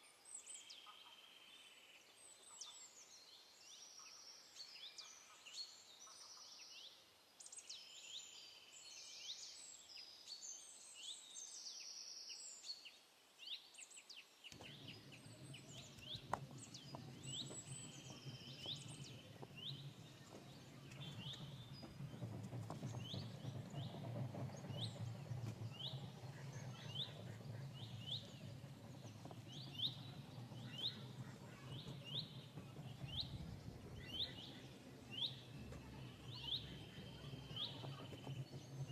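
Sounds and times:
birds chirping and trilling: 14.5s - 38.9s.

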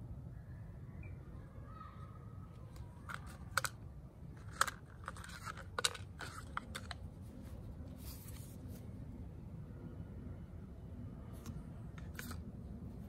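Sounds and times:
packaging clicks and crinkles: 2.7s - 3.8s, 4.4s - 7.1s
soft rustle: 4.4s - 9.2s.

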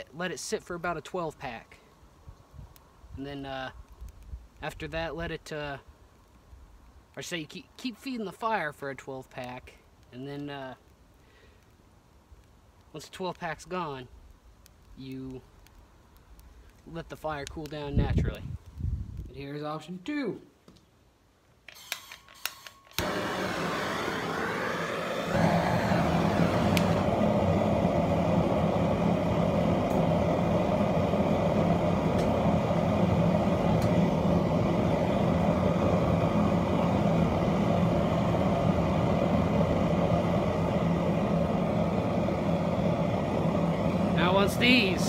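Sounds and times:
gas burner jet rushing: 21.8s - 45.0s.

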